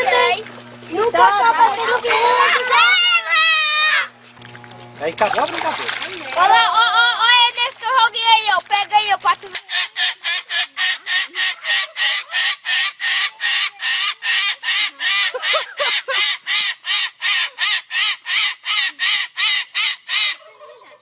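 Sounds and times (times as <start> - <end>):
cockatoo screeching: 2.4 - 4.1, 9.6 - 20.4.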